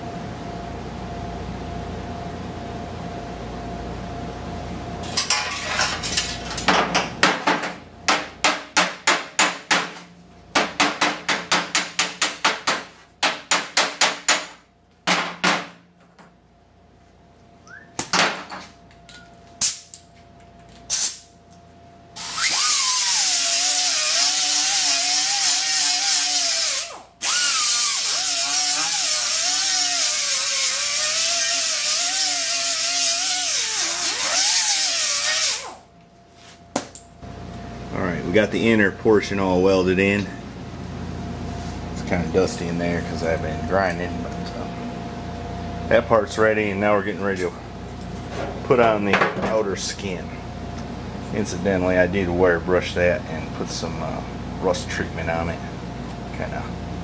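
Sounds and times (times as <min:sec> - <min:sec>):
die grinder grinding metal: 0:22.2 - 0:35.8
welder short bursts: 0:22.2 - 0:35.8.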